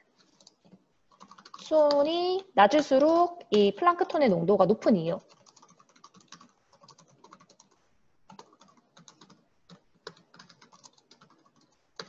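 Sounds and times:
typing on computer keyboard: 0.2 - 2.0, 5.2 - 12.0.

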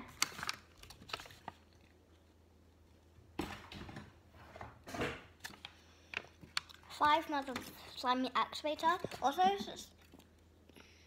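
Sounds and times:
paper rustling: 0.0 - 2.3.

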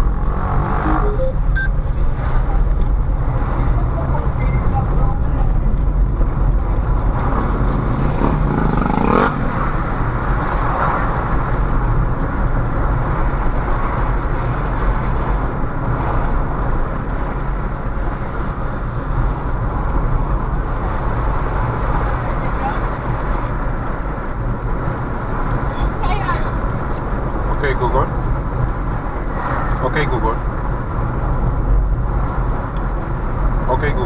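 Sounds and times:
car engine and tyres rumbling: 0.0 - 34.0
brief rising sound: 0.6 - 1.8.

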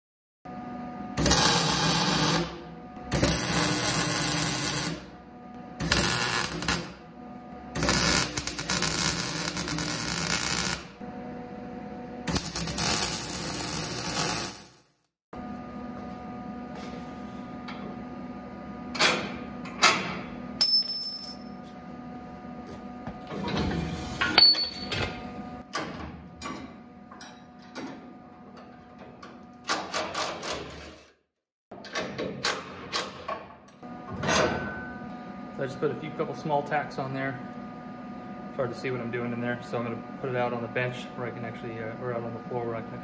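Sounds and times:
welding arc bursts: 1.2 - 5.1, 5.8 - 7.0, 7.8 - 11.0, 12.3 - 14.9.

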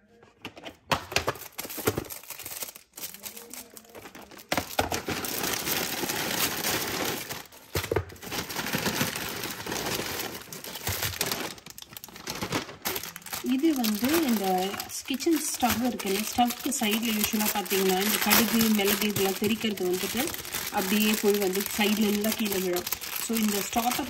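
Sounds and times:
plastic packaging crinkling: 0.9 - 24.0.

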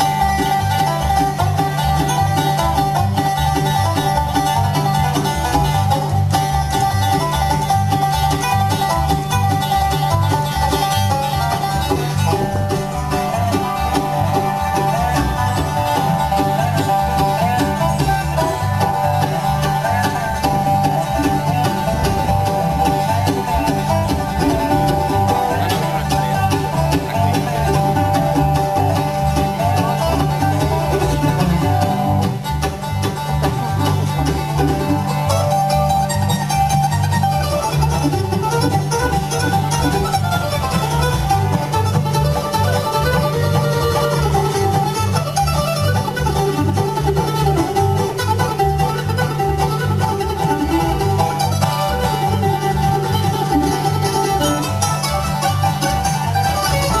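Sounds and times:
bluegrass band playing: 0.0 - 57.0
upright bass plucking: 0.0 - 57.0.

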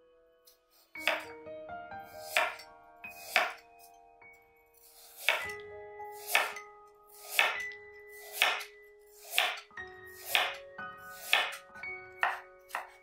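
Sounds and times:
soft music with mallet tones: 0.0 - 13.0
knife chopping carrot on board: 1.0 - 1.3, 2.2 - 2.6, 3.2 - 3.6, 4.9 - 5.6, 6.2 - 6.6, 7.2 - 10.6, 11.2 - 11.6, 12.2 - 13.0.

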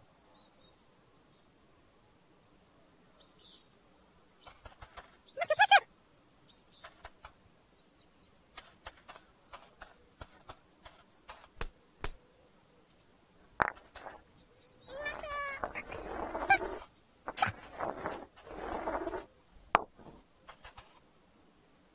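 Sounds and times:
high wavering straining voice: 14.9 - 17.7.

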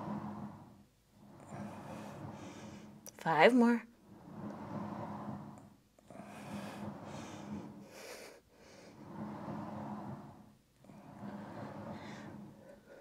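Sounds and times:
exercise machine carriage rolling: 0.0 - 13.0
heavy breathing: 1.3 - 3.0, 5.4 - 13.0.

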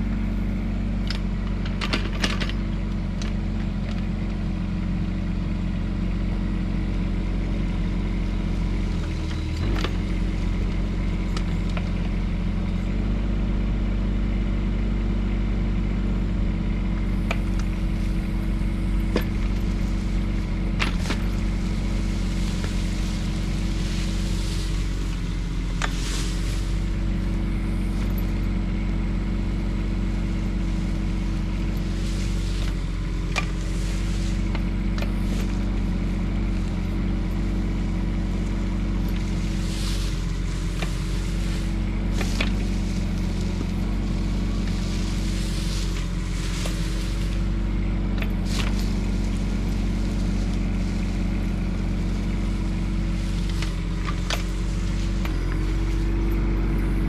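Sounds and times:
excavator diesel engine running: 0.0 - 57.0
bucket scraping soil: 17.1 - 28.4, 30.0 - 57.0.

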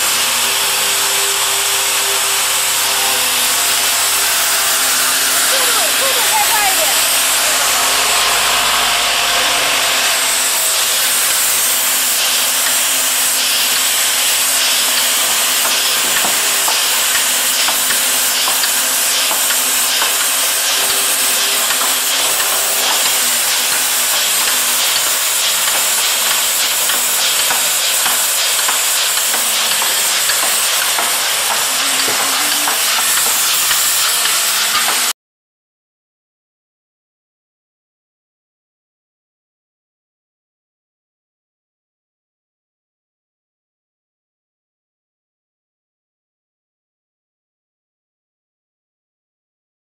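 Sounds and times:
loud steady machine hiss: 0.0 - 35.1.

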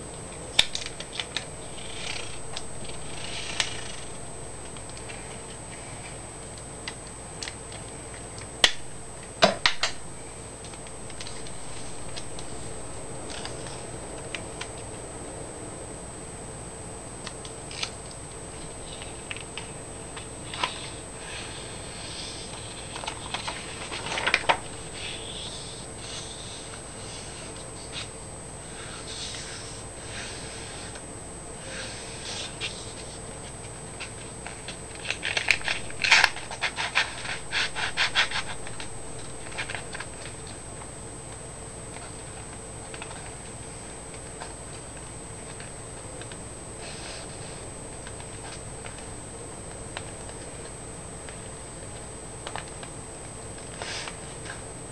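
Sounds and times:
steady background hum: 0.0 - 54.9
paper rustling: 0.6 - 6.2, 7.5 - 14.8, 20.5 - 28.1, 31.9 - 40.6.

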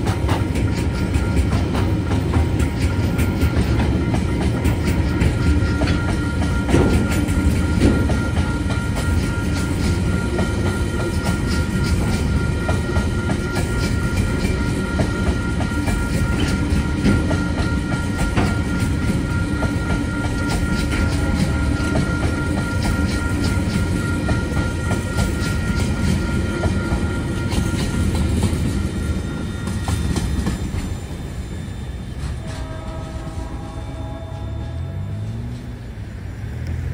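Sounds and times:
wheels clicking over rail joints: 0.0 - 28.8
freight train rumbling past: 0.0 - 36.9.

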